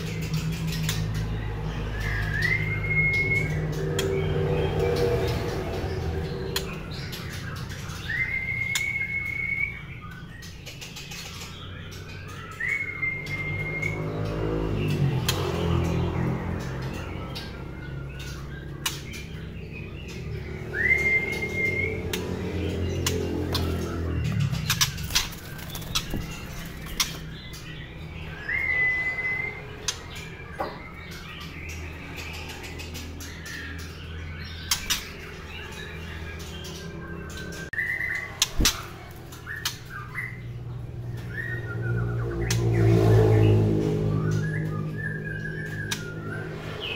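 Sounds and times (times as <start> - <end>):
bird whistling: 1.9 - 4.3, 6.5 - 10.6, 12.0 - 14.2, 20.3 - 22.4, 23.0 - 31.6, 34.4 - 40.5, 44.1 - 46.9.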